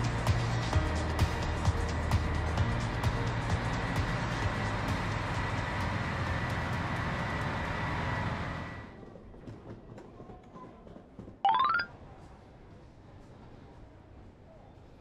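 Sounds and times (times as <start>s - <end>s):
diesel train rumbling: 0.0s - 9.6s
station concourse background: 0.0s - 15.0s
rising electronic tones: 11.5s - 11.9s.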